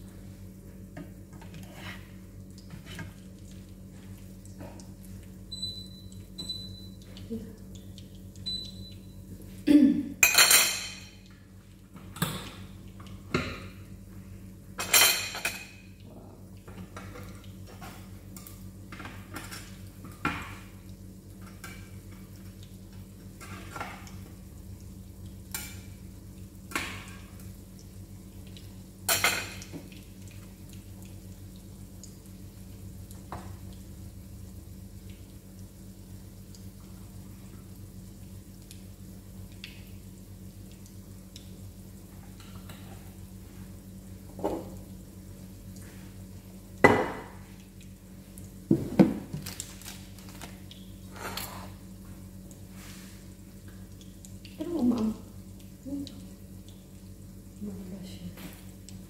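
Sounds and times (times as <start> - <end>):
low steady hum: 0.0 - 59.0
pans and utensils clanking: 10.2 - 11.2.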